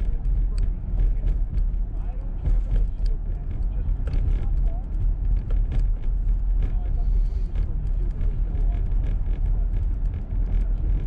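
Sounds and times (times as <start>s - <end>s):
car engine rumble: 0.0s - 11.0s
road noise: 0.0s - 11.0s
light ticks: 2.7s - 5.9s.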